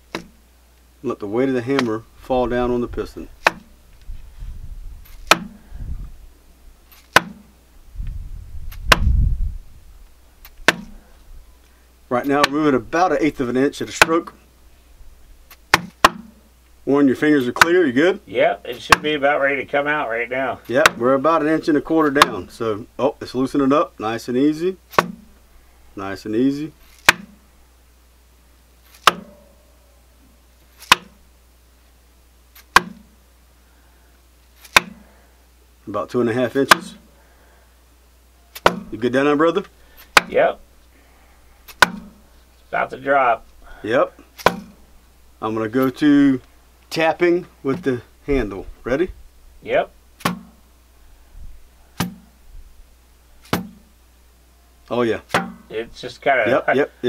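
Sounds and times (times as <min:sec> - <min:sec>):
hammer knocks: 0:53.5 - 0:53.8.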